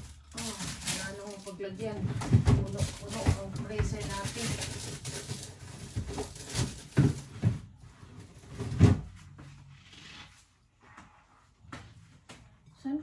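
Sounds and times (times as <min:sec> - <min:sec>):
groceries knocking in fridge: 0:00.0 - 0:07.8.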